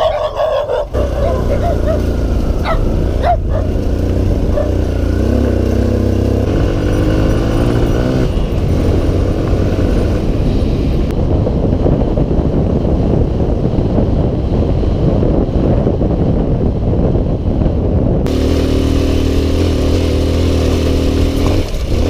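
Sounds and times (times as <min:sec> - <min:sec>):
dirt bike engine accelerating: 0:00.0 - 0:11.1, 0:18.3 - 0:22.0.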